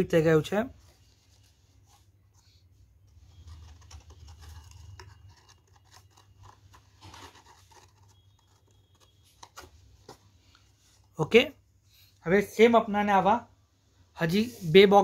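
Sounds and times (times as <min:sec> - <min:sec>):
paper rustling and scraping: 0:00.8 - 0:11.1.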